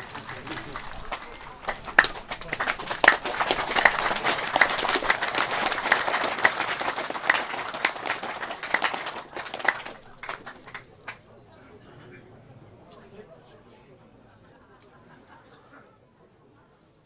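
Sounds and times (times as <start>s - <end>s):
crowd clapping: 0.0s - 11.3s.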